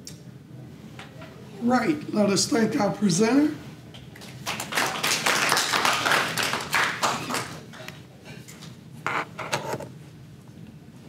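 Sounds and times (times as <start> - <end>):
audience clapping: 4.1 - 7.8.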